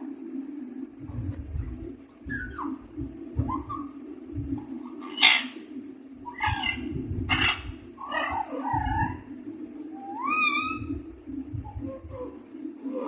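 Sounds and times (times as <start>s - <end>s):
steady low hum: 0.0s - 13.0s
parakeet squawking and chattering: 2.2s - 4.0s, 4.6s - 9.3s, 10.0s - 11.0s
parakeet whistled call: 2.3s - 2.8s, 10.0s - 10.9s.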